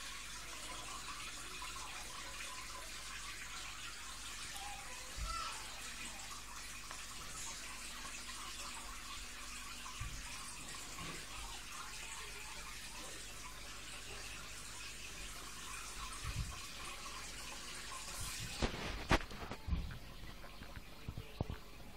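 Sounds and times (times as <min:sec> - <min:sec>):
water trickling in fish tank: 0:00.0 - 0:21.9
soft low thumps: 0:18.4 - 0:20.1.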